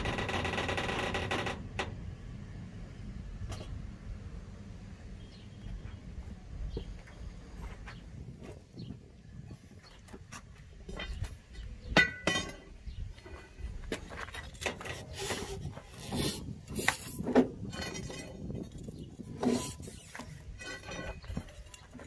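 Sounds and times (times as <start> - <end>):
metal tools clinking and knocking: 11.9 - 13.4, 20.5 - 22.0.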